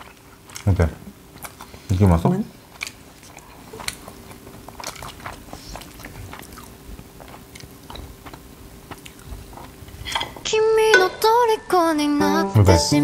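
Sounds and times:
person chewing food: 0.0 - 10.4.

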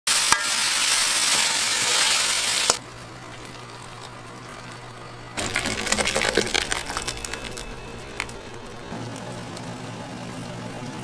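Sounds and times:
food sizzling: 0.1 - 11.0
low steady hum: 2.8 - 11.0.

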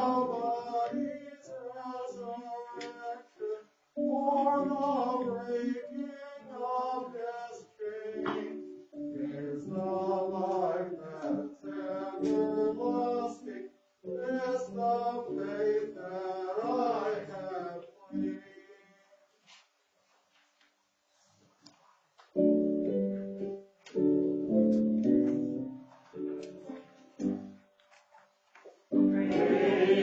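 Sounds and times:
church choir singing: 0.0 - 19.1, 29.0 - 30.0.

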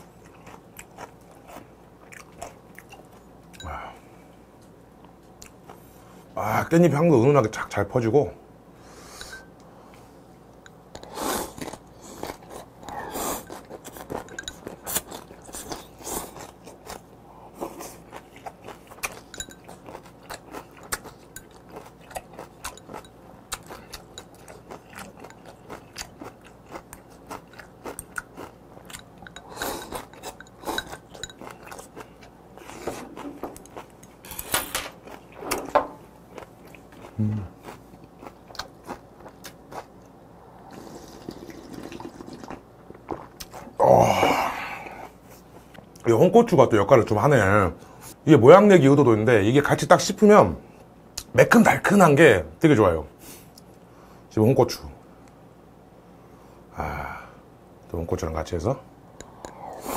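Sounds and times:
chewing and crunching: 0.0 - 3.7, 10.6 - 35.5, 36.1 - 43.8
slurping broth: 40.6 - 42.6.

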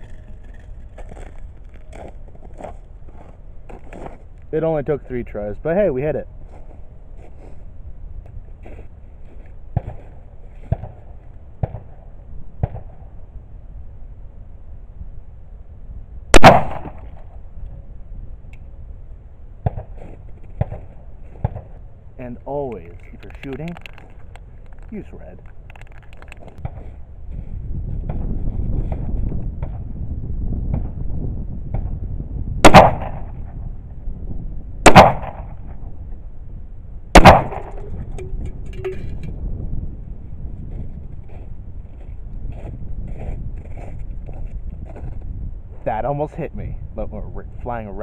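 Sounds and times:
pistol shot: 16.4 - 17.0, 32.6 - 33.4, 34.8 - 35.6, 37.2 - 37.9.

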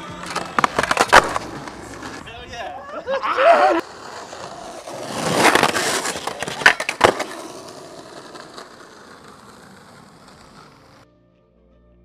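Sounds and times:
sharp skateboard clacks: 0.0 - 2.2, 4.8 - 11.0
skateboard scraping: 0.0 - 11.0
skateboard wheels rolling on asphalt: 0.0 - 11.1.

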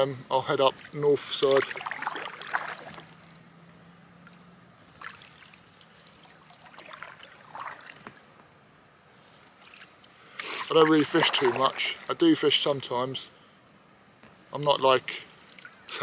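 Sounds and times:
soft water splashes and drips: 0.6 - 3.4, 4.2 - 8.4, 9.4 - 12.2, 15.1 - 16.0
paddle dipping through water: 0.8 - 3.4, 5.0 - 8.3, 9.6 - 12.2.

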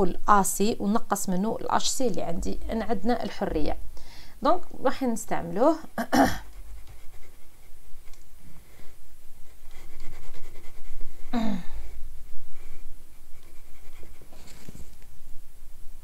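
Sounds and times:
faint scratchy noise: 0.0 - 16.0
low steady rumble: 0.0 - 16.0
person breathing: 4.0 - 4.4, 11.2 - 12.9.

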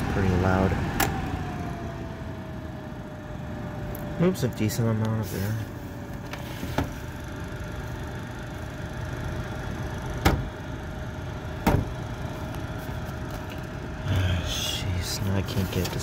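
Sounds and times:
window fan running: 0.0 - 16.0
knocks on fan housing: 10.2 - 10.5, 11.6 - 12.0.

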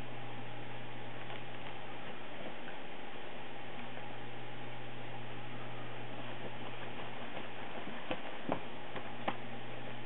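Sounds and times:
constant low hum: 0.0 - 10.0.

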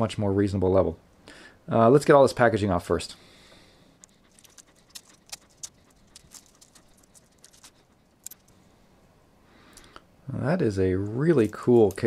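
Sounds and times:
bracelet links clicking: 4.0 - 8.6.

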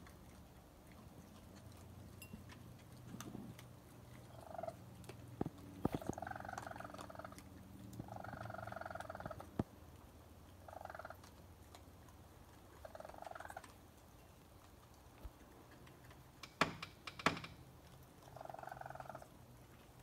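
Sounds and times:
young raccoons chirping: 2.8 - 9.7, 10.5 - 13.9, 18.2 - 19.3
sharp knocks: 16.4 - 17.6.

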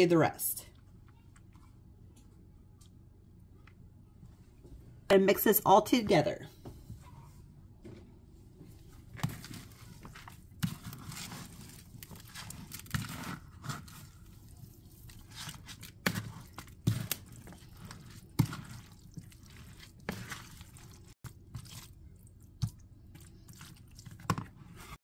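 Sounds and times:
spoon stirring wet mixture: 8.6 - 25.0.

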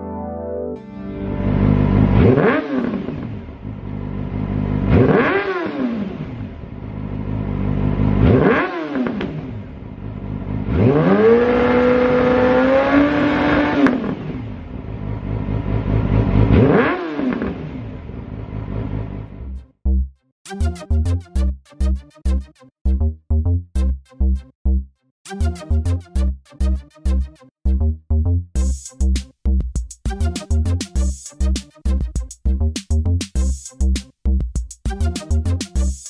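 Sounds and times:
motorcycle engine revving: 1.6 - 19.3.

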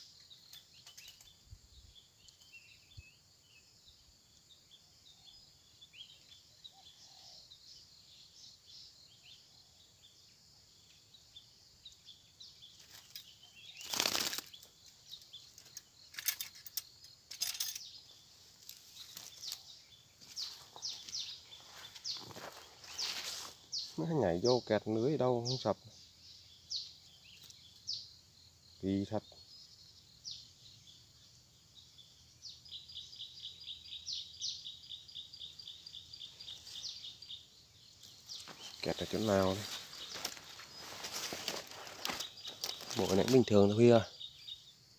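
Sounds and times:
faint high chirping: 0.0 - 44.9
loud short rustling: 20.3 - 23.6, 38.3 - 43.3.

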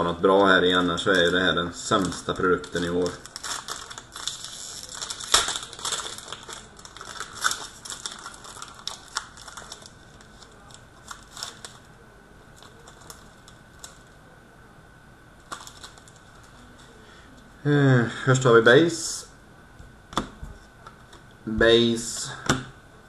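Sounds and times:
foil wrapper crinkling: 0.6 - 12.0, 12.6 - 14.2, 15.4 - 16.9.

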